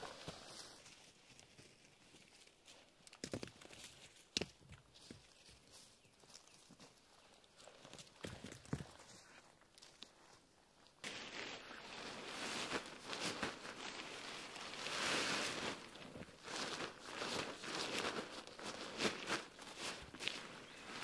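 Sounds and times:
nylon fabric rustling and scraping: 11.0s - 21.0s.

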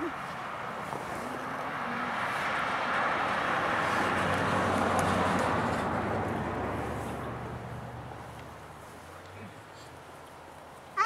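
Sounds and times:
truck with trailer driving past: 0.6s - 9.0s.

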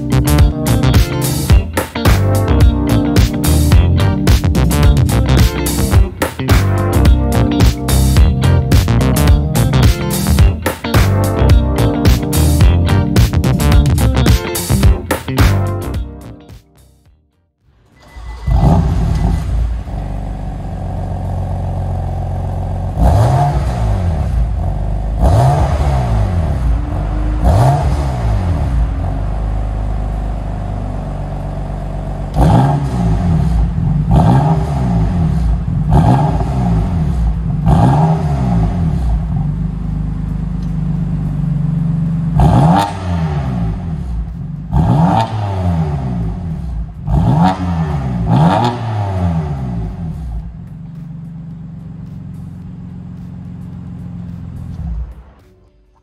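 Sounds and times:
car engine idling: 17.7s - 55.5s
engine revving blips: 22.9s - 55.5s.

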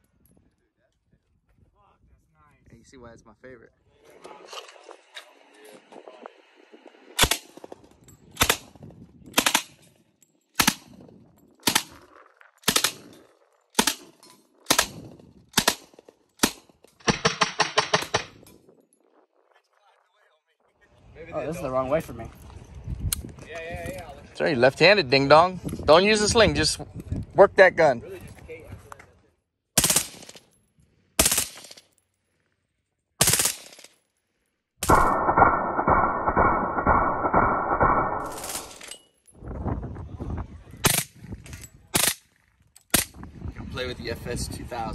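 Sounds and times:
submachine gun firing: 7.2s - 7.6s, 10.6s - 10.8s, 11.6s - 12.0s, 12.6s - 13.1s, 13.8s - 14.1s, 15.6s - 18.3s, 29.8s - 30.4s, 31.2s - 31.8s, 33.2s - 33.9s, 34.8s - 38.8s.

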